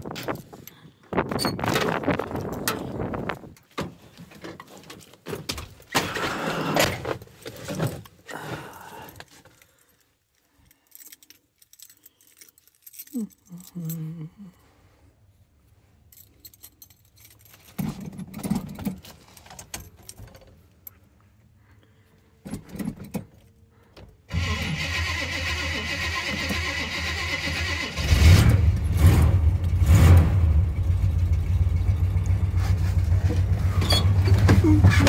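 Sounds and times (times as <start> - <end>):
keys jangling: 9.2 - 14.5, 16.1 - 21.0
truck engine starting: 24.3 - 35.0
knocks and rustling: 32.4 - 35.0.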